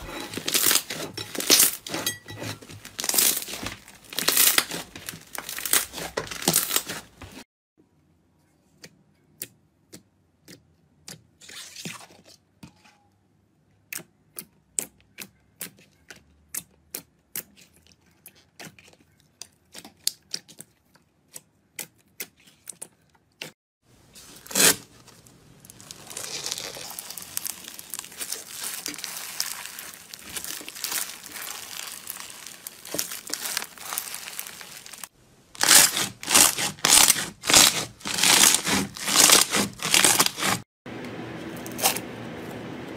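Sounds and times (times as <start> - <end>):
foam bead slime crackling: 0.0 - 2.0, 2.7 - 7.4, 24.0 - 40.6
foam bead slime crunches: 0.0 - 7.4, 24.0 - 40.6.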